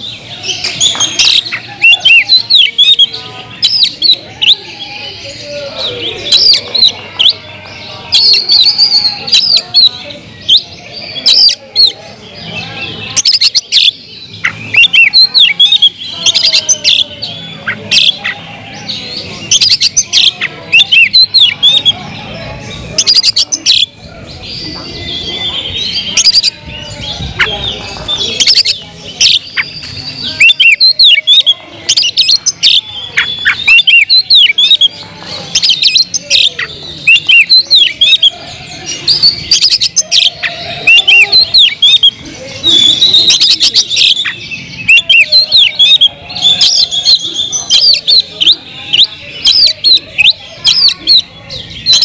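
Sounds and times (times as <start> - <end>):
bird song with whistles and clicks: 0.6 - 4.7, 13.2 - 18.4, 28.3 - 38.3, 39.0 - 52.0.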